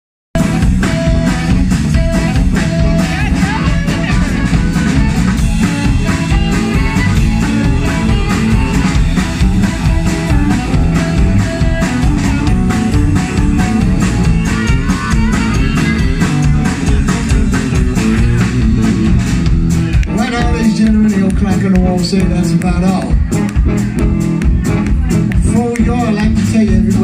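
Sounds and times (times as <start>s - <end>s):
drum kit steady beat: 0.3s - 27.0s
electric bass: 0.3s - 27.0s
harmonica: 0.4s - 19.0s
electric guitar: 0.4s - 27.0s.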